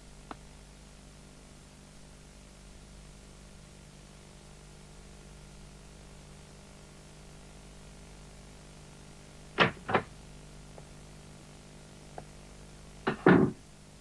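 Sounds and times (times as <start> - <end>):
door banging shut: 9.6 - 10.1, 13.1 - 13.6
wooden door clacks opening: 13.1 - 13.6.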